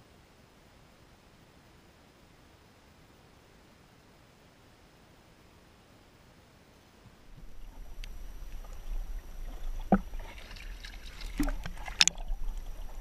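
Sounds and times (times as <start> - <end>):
water lapping and sloshing: 7.2 - 13.0.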